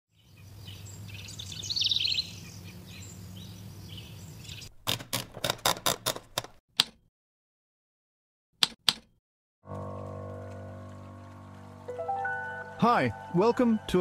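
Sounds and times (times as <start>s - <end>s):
birds chirping: 0.1s - 4.7s
low hum: 9.7s - 14.0s.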